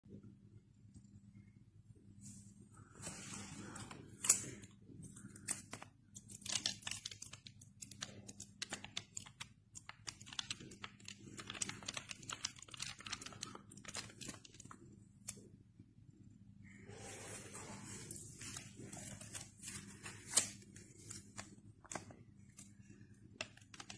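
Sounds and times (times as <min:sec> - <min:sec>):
faint steady hum: 0:00.0 - 0:23.9
paper banknotes crackling: 0:05.2 - 0:14.8, 0:18.0 - 0:23.9.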